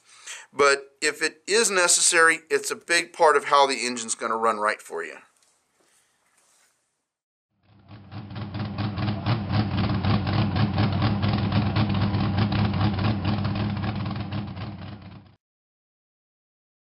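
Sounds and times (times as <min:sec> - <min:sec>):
engine idling: 0:07.7 - 0:15.3.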